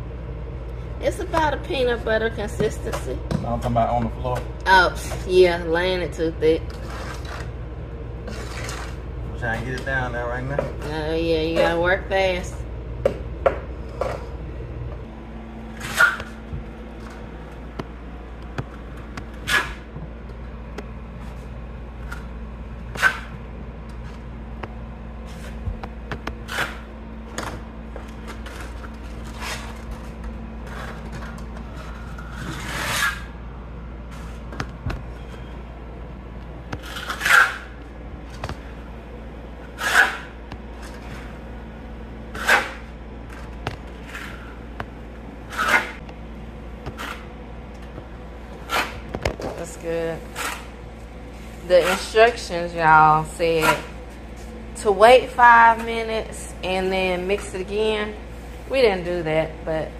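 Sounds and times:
steady low hum: 0.0 - 59.9
trowel scraping mortar: 32.1 - 33.3, 36.8 - 37.7.

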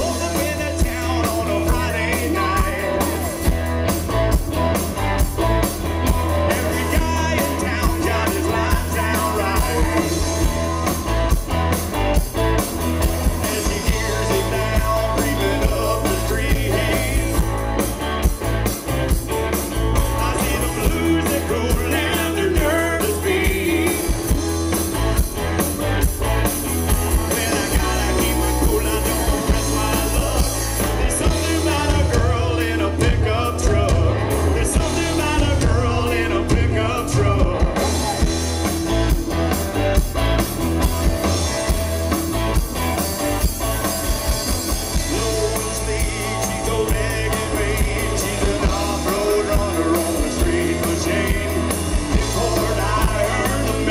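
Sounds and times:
person singing: 0.0 - 3.5, 6.3 - 10.6, 13.2 - 17.6, 19.8 - 24.4, 26.9 - 38.5, 44.7 - 53.9
bass: 0.0 - 53.9
drums: 0.0 - 53.9
guitar: 0.0 - 53.9.

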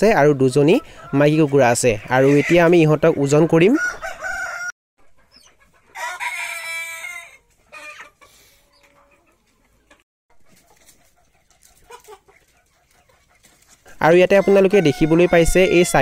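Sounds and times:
chickens clucking: 0.0 - 16.0
rooster crowing: 3.7 - 4.7, 6.0 - 8.0, 14.3 - 16.0.

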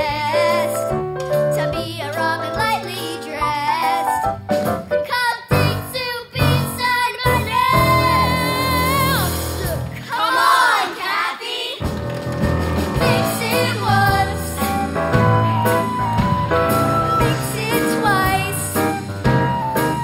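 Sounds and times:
band accompaniment: 0.0 - 10.1, 11.7 - 20.0
children singing: 10.0 - 11.8, 13.0 - 15.0.

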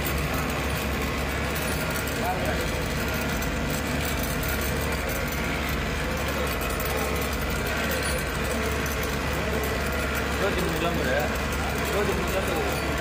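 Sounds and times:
bus engine droning: 0.0 - 13.0.

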